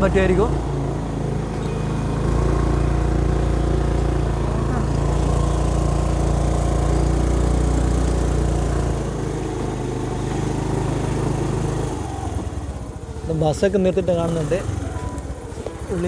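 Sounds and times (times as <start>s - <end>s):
motorbike engine running: 0.0s - 16.0s.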